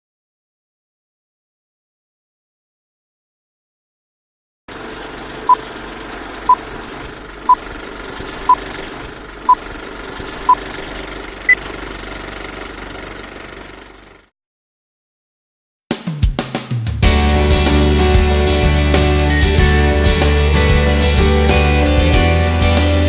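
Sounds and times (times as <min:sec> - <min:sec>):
film projector whirring clatter: 0:04.7 - 0:14.3.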